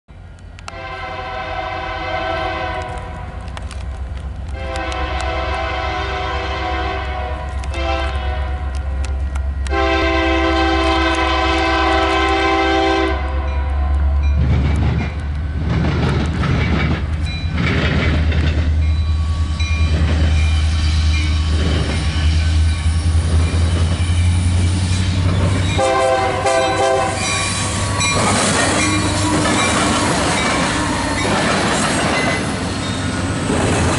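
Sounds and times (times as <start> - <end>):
locomotive rumble: 0.1 - 33.9
locomotive air horn blasts: 0.7 - 3.3, 4.5 - 14.0, 25.7 - 31.3
train wheels clattering: 14.0 - 33.9.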